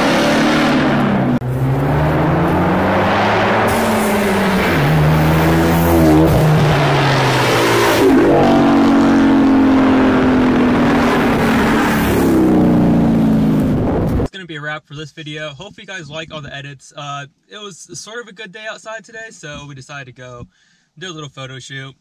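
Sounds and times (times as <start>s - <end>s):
cars accelerating hard: 0.0s - 14.3s.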